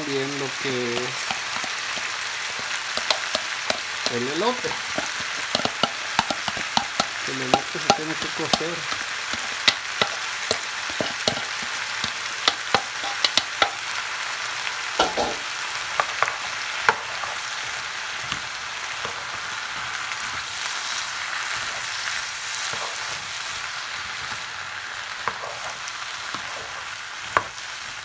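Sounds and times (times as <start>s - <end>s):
vegetables sizzling in a skillet: 0.0s - 28.0s
spoon scraping a pan: 0.5s - 14.0s, 15.0s - 17.5s, 22.6s - 23.2s, 25.2s - 27.6s.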